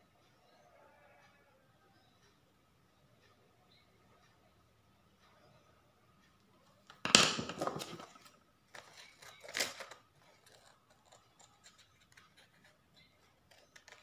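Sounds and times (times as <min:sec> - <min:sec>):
scissors snipping paper: 0:08.8 - 0:14.0.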